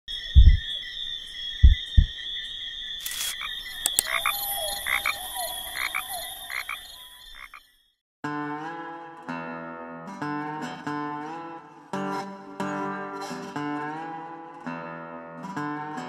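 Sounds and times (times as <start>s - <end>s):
frogs calling: 0.1s - 7.9s
low thumps: 0.3s - 0.7s, 1.6s - 2.2s
acoustic guitar music: 8.2s - 16.0s.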